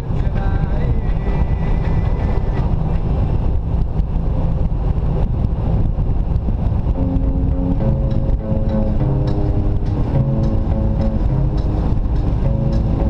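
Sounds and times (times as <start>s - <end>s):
music: 0.0s - 2.7s, 6.9s - 13.0s
vehicle rumble: 0.0s - 13.0s
wind buffeting microphone: 0.0s - 13.0s.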